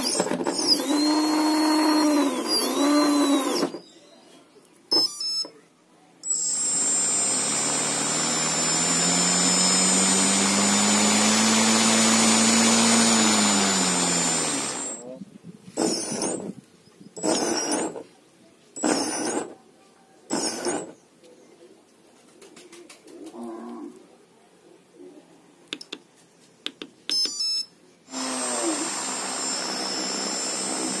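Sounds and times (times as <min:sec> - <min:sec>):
electric motor whining: 0:00.0 - 0:03.8, 0:06.3 - 0:15.0, 0:15.8 - 0:16.5, 0:28.1 - 0:31.0
electronic beeps: 0:04.9 - 0:05.6, 0:27.1 - 0:27.8
sharp clicks: 0:25.7 - 0:27.4.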